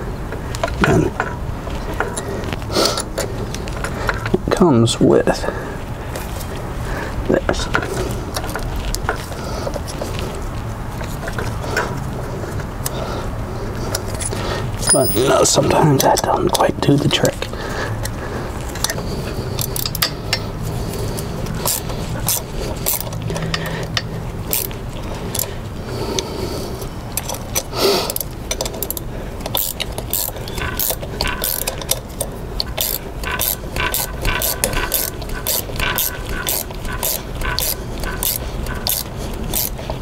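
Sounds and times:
ratchet wrench clicking: 0:18.8 - 0:20.5, 0:21.2 - 0:25.5, 0:27.2 - 0:40.0.

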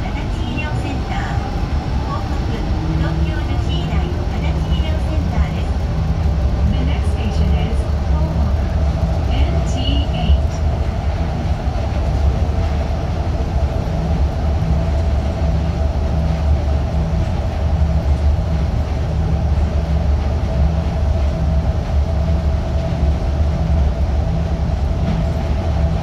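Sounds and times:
constant hum: 0:00.0 - 0:26.0
train running rumble: 0:00.0 - 0:26.0.

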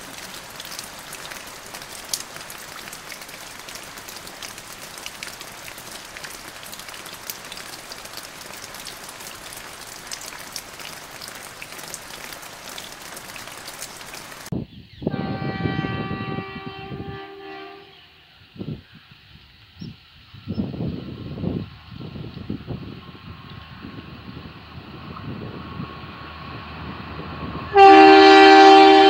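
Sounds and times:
rain hissing: 0:00.0 - 0:14.5, 0:15.1 - 0:29.0
sharp ticks of raindrops: 0:00.0 - 0:14.5.

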